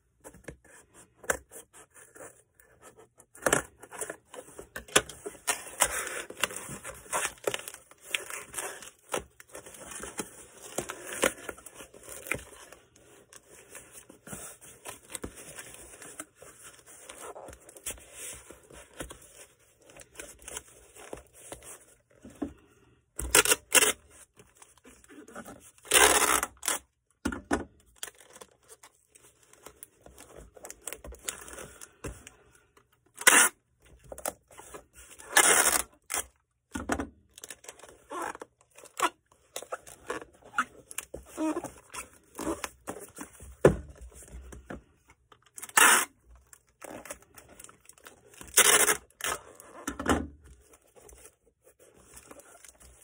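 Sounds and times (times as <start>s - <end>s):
packing materials scraping and rustling: 1.4s - 22.2s, 37.4s - 44.6s, 50.5s - 53.0s
tearing noises: 25.8s - 26.8s.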